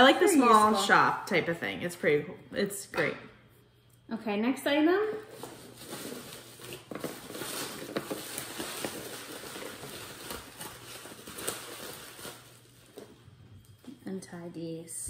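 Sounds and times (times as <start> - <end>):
packaging rustling: 5.3 - 13.7.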